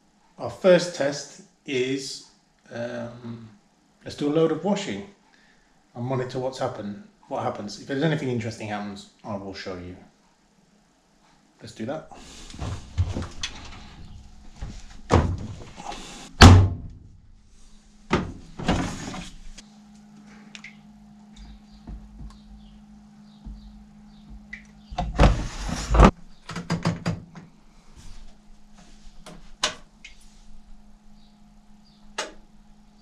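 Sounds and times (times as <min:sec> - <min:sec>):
low steady hum: 0:00.0 - 0:33.0
thunks and knocks loading washer: 0:12.5 - 0:15.8, 0:16.4 - 0:17.2, 0:18.1 - 0:19.3, 0:21.4 - 0:22.6.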